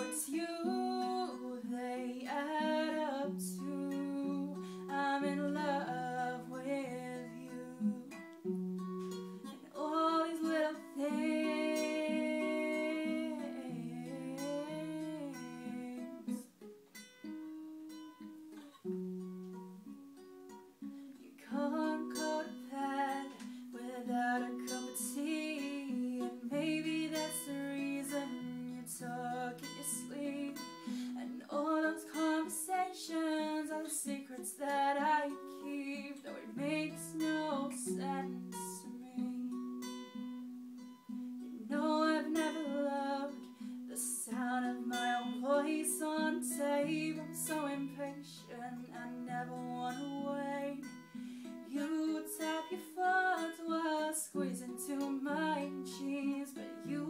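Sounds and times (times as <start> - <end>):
woman singing: 0.0 - 16.5, 21.1 - 40.2, 41.5 - 57.0
acoustic guitar: 0.0 - 57.0.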